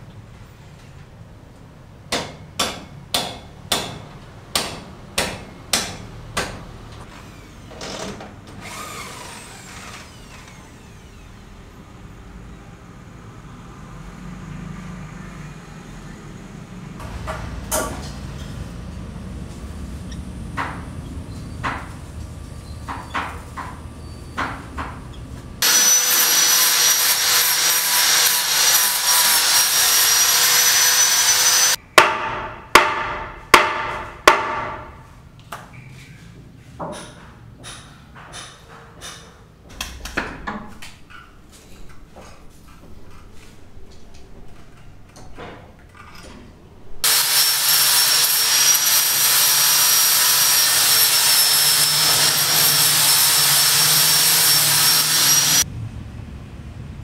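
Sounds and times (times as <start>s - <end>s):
power tool whining: 7.1s - 11.6s, 25.6s - 31.8s, 47.0s - 55.6s
sharp knocks: 32.0s - 35.0s.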